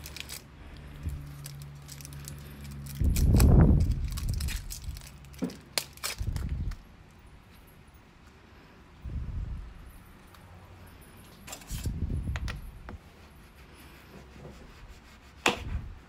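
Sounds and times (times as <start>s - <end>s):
steady low hum: 6.0s - 16.0s.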